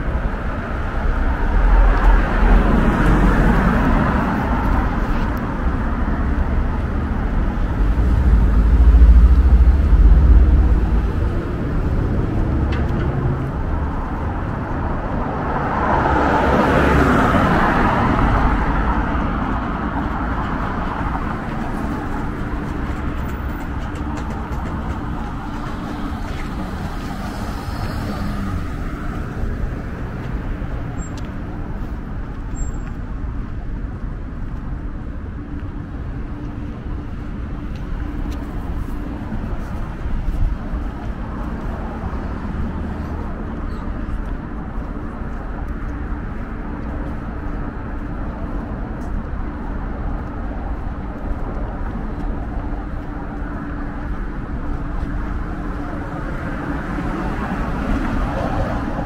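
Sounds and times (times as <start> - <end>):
vehicle passing close: 0.0 - 31.0
traffic rumble: 0.0 - 59.0.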